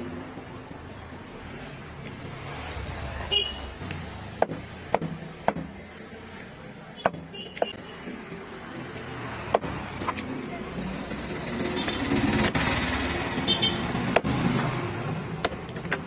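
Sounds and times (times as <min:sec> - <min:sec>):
knife chopping on wooden block: 0:04.3 - 0:05.8.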